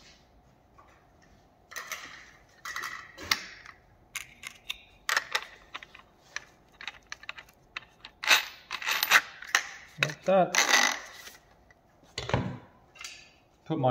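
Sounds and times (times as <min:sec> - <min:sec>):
metal clicks and clatter: 0:01.7 - 0:10.7.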